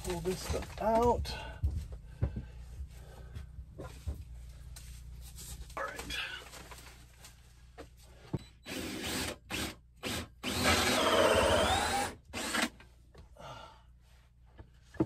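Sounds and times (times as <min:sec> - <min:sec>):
power drill cutting into wood: 0:08.6 - 0:12.8.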